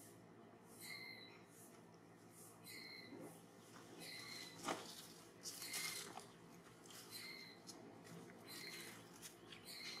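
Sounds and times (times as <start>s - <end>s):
high-pitched animal calls: 2.6s - 3.2s, 4.0s - 4.6s, 7.0s - 7.7s, 8.4s - 9.0s.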